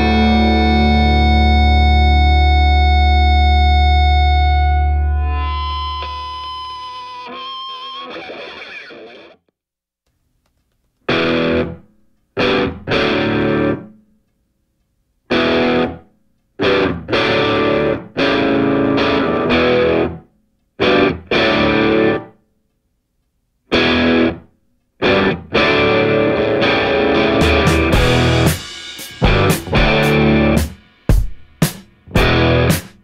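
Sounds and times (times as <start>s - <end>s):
distorted electric guitar chords: 0.0s - 9.5s, 11.1s - 14.0s, 15.3s - 16.0s, 16.6s - 20.2s, 20.8s - 22.3s, 23.7s - 30.8s, 32.0s - 33.0s.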